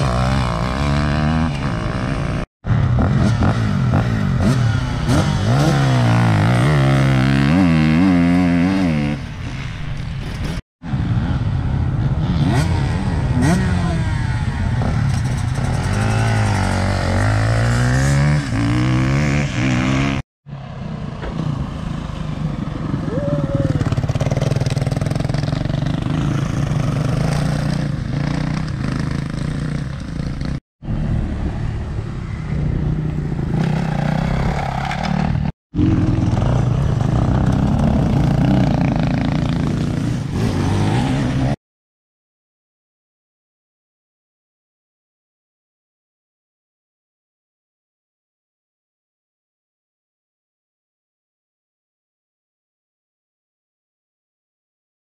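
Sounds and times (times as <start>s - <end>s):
dirt bike engine revving: 0.0s - 20.2s, 23.8s - 31.3s, 33.4s - 41.6s.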